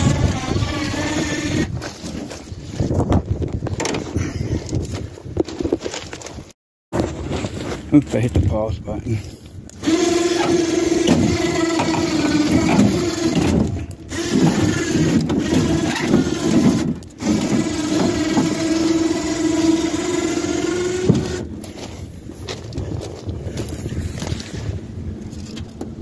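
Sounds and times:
electric winch motor whining: 0.0 - 1.7, 9.8 - 21.5.

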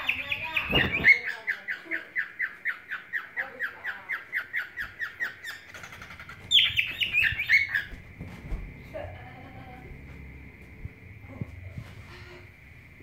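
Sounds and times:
cockatiel chirping song: 0.0 - 8.0.

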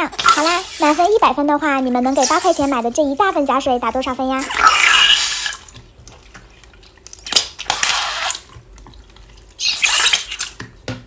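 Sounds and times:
slime squelching and crackling: 0.0 - 10.6.

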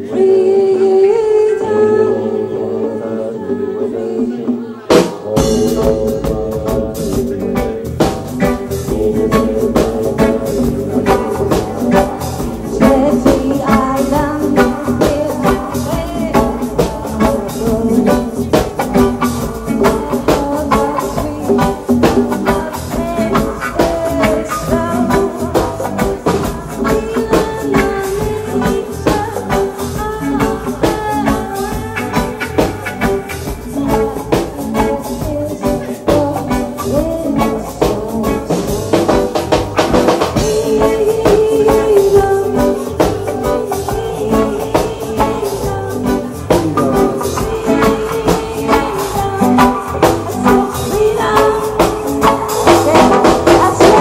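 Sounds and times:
drums: 0.0 - 54.0
sustained instrumental lines: 0.0 - 54.0.

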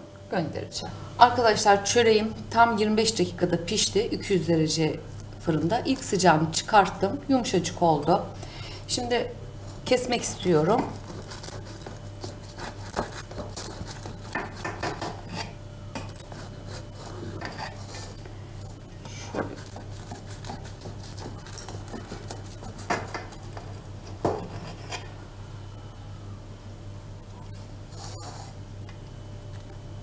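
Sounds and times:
steady low hum: 0.0 - 30.0
knife cutting bread: 10.8 - 18.2, 19.3 - 25.1.

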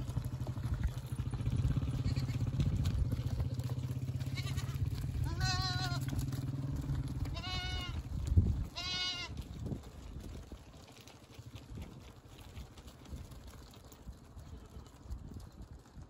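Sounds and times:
motorcycle engine running: 0.0 - 15.4
goat bleating: 1.9 - 6.2, 7.2 - 8.0, 8.7 - 9.4.

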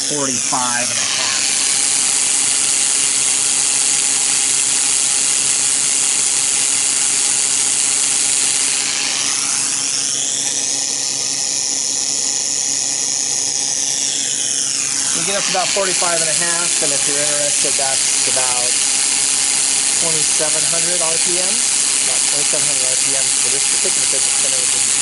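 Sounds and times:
compressed air hissing: 0.0 - 9.4, 14.8 - 25.0
fidget spinner whirring: 0.0 - 25.0.

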